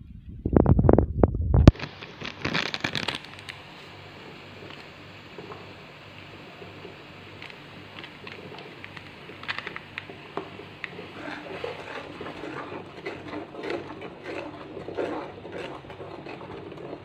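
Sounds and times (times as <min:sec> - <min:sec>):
metal spoon scraping a frying pan: 0:11.0 - 0:17.0.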